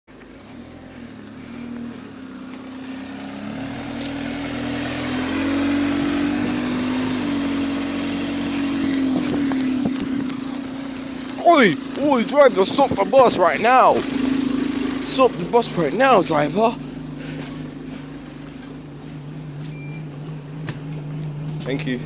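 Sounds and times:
diesel bus passing: 0.1 - 22.0.

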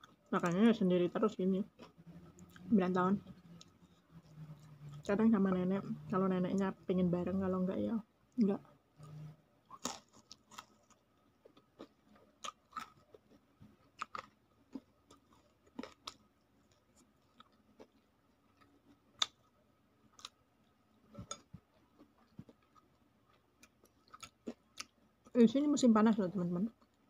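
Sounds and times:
person chewing crunchy food: 1.7 - 5.2, 9.0 - 19.5, 20.1 - 25.4.

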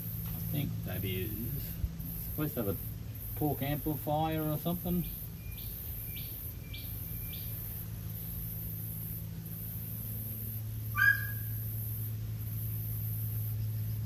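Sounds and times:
low mechanical hum: 0.0 - 14.0
high animal yelp: 11.0 - 11.5.

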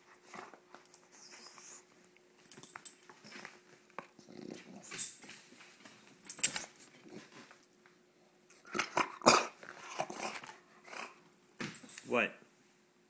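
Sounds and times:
dog growling: 4.2 - 4.9.

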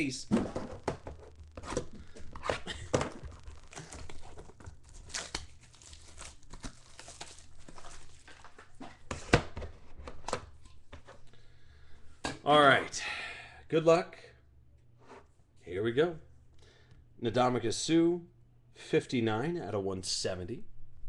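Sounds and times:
plastic wrap tearing and crinkling: 1.3 - 8.8.

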